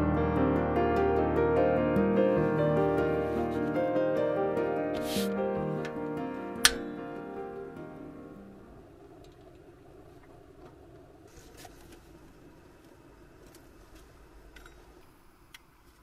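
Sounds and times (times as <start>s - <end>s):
background music: 0.0s - 9.2s.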